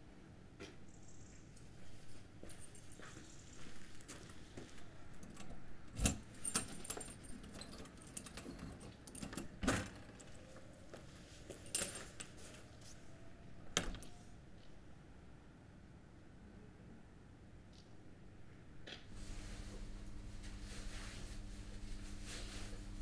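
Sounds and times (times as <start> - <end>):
keys jangling: 6.0 - 9.4.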